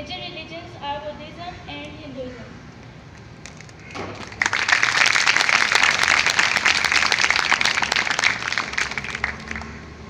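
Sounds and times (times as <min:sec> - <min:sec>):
audience applauding: 0:03.5 - 0:10.0.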